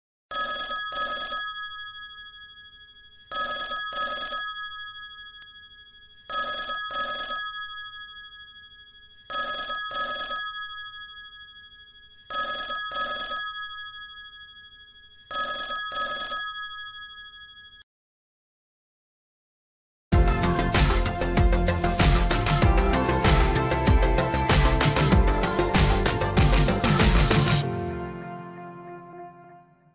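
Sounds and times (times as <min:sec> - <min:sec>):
telephone bell ringing: 0:00.3 - 0:17.9.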